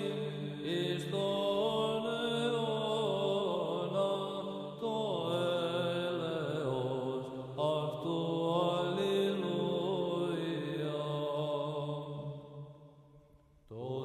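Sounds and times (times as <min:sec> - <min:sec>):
ornamented vocal chant: 0:00.0 - 0:13.0, 0:13.6 - 0:14.0.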